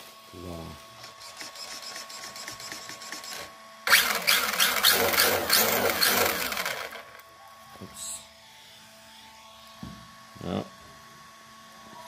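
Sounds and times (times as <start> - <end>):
electric motor whirring: 1.0 - 7.3.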